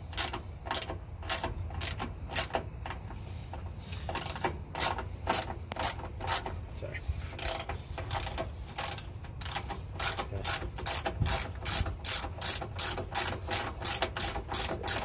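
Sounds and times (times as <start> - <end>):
ratchet wrench clicking: 0.0 - 3.2, 4.0 - 6.6, 7.3 - 15.0.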